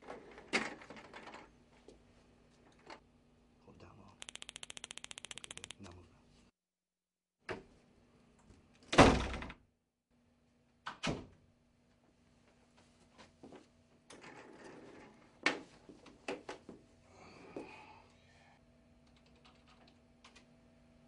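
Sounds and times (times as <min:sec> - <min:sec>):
door shutting with a thud: 0:08.9 - 0:09.6.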